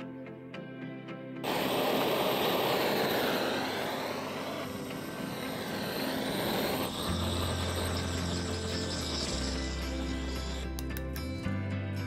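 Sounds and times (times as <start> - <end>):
low hum: 1.4 - 10.8
gas torch hissing: 1.4 - 11.1.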